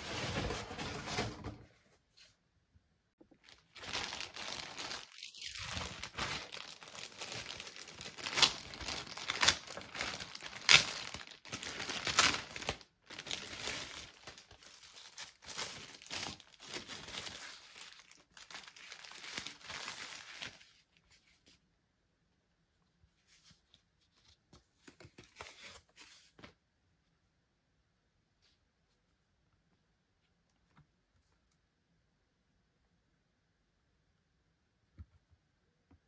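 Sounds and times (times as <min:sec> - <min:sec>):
packaging crinkling and rustling: 0:03.2 - 0:20.8
sharp packaging crackles: 0:03.4 - 0:20.7.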